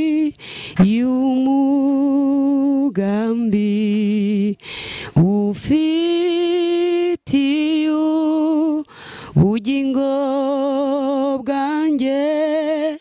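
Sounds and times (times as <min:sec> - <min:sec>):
woman singing unaccompanied: 0:00.0 - 0:13.0
woman breathing: 0:00.3 - 0:00.8, 0:04.6 - 0:05.2, 0:08.8 - 0:09.4.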